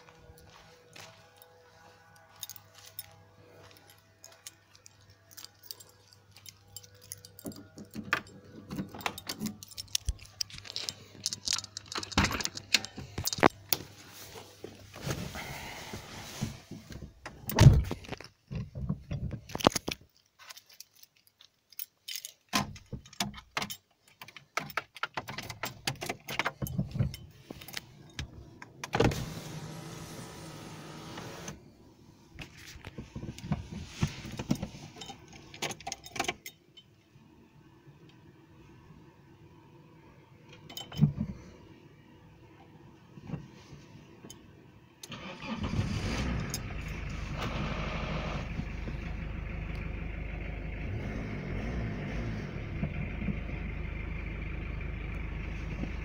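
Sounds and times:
keys jangling: 0:02.2 - 0:13.6, 0:19.6 - 0:27.9
clicks and rattles: 0:04.5 - 0:13.8.

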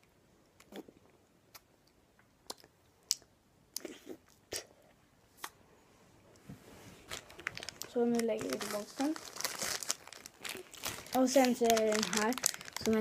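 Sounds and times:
biting and chewing ice lolly: 0:07.7 - 0:13.0.

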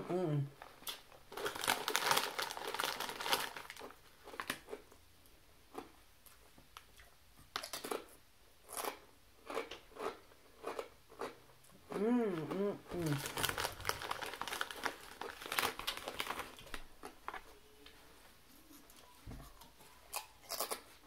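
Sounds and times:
chip bag crinkling: 0:00.6 - 0:04.8, 0:12.9 - 0:17.6.

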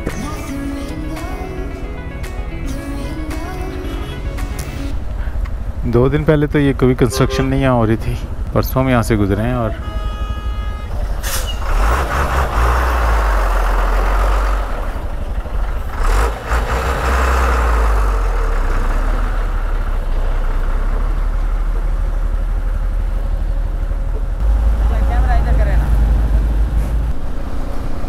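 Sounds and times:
motorcycle engine: 0:00.0 - 0:28.0
brief sharp hissing: 0:11.2 - 0:11.7.

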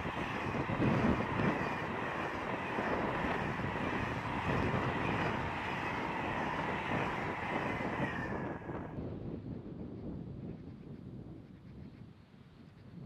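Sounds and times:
faint high whine: 0:00.0 - 0:09.0
train wheels rumbling on rail: 0:00.0 - 0:12.9.

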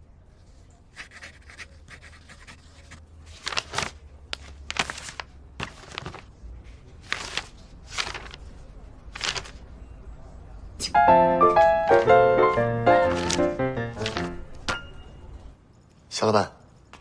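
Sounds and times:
pen scratching on paper: 0:00.9 - 0:03.0
paper rustling: 0:00.9 - 0:09.6, 0:11.9 - 0:14.6.

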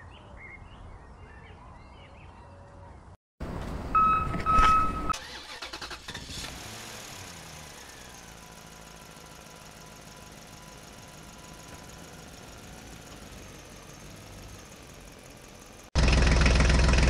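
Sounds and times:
engine starting and idling: 0:05.0 - 0:17.0.

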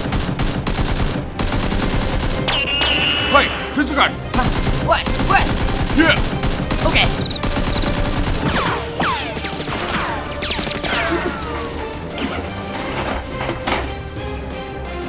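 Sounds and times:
action music with low beat: 0:00.0 - 0:11.0.

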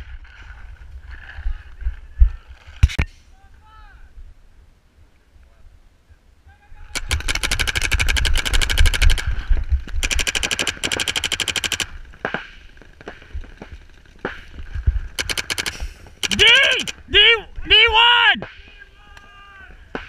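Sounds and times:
paintball marker firing: 0:07.0 - 0:14.6, 0:15.2 - 0:17.0.

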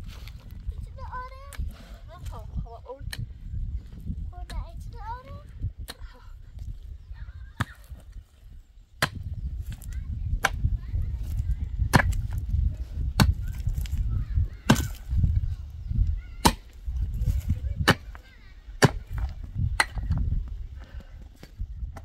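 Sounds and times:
pickaxe striking stony soil: 0:09.0 - 0:14.0, 0:14.6 - 0:15.2, 0:16.4 - 0:18.2, 0:18.8 - 0:20.2.

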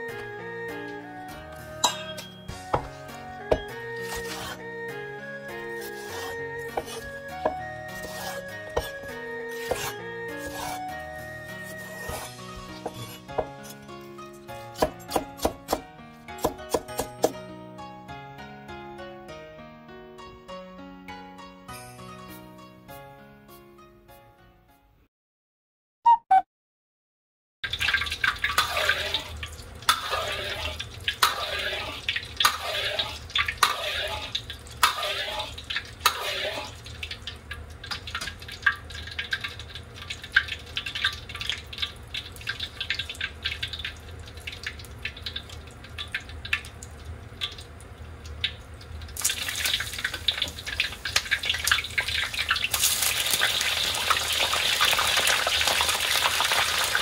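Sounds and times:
food sizzling in oil: 0:05.8 - 0:13.8, 0:27.7 - 0:46.4, 0:47.7 - 0:57.0
hot oil crackling and popping: 0:27.6 - 0:57.0.

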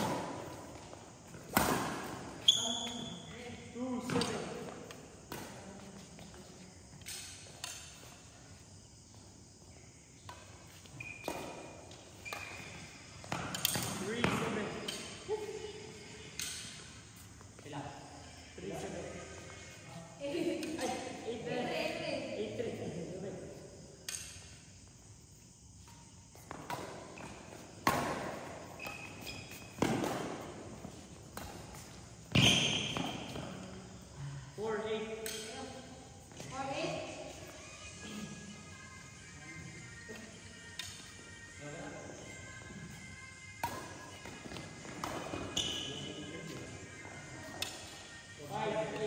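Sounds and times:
rackets hitting shuttlecock: 0:01.3 - 0:03.0, 0:10.2 - 0:15.2, 0:16.3 - 0:16.9, 0:26.4 - 0:33.4, 0:35.2 - 0:35.6, 0:43.6 - 0:45.9, 0:47.4 - 0:48.0
racket striking shuttlecock: 0:01.5 - 0:02.2, 0:26.4 - 0:30.6, 0:43.6 - 0:45.6
shoe squeaks: 0:01.6 - 0:03.5, 0:10.6 - 0:17.4, 0:25.9 - 0:34.0, 0:42.3 - 0:48.3.

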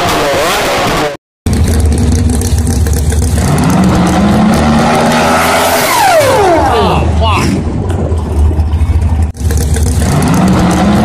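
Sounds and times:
drag car engine revving: 0:00.0 - 0:11.0
low engine rumble: 0:01.5 - 0:04.7, 0:06.3 - 0:11.0.

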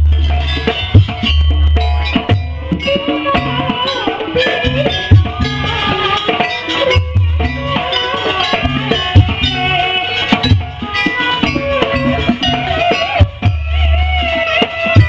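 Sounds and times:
drums keeping a beat: 0:00.0 - 0:15.0
wavering melody line: 0:00.0 - 0:15.0.

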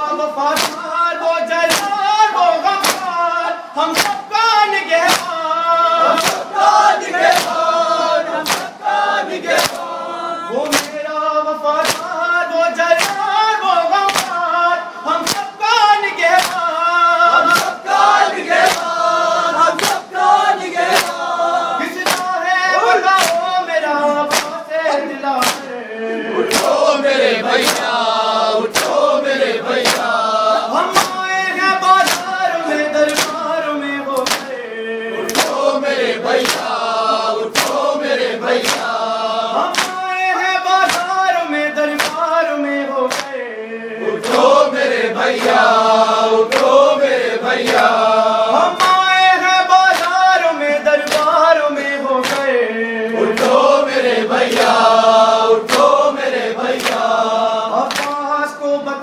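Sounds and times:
crowd of men chanting: 0:00.0 - 0:59.0
man reciting lead chant: 0:00.0 - 0:59.0
rhythmic chest slapping: 0:00.0 - 0:59.0.

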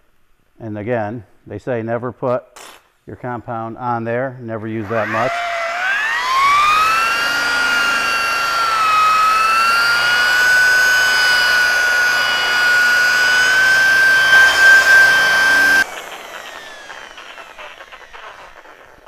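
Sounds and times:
rotary buffer motor whine: 0:04.8 - 0:19.0.

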